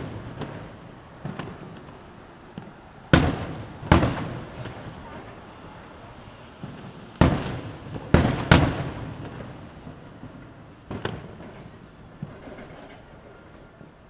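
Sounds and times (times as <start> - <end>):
firework shells booming: 0.0 - 14.0.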